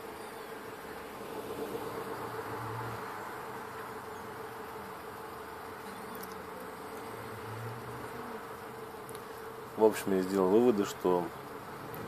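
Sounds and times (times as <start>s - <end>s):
bus engine and road drone: 0.0s - 9.2s
constant buzzing hum: 0.0s - 12.0s.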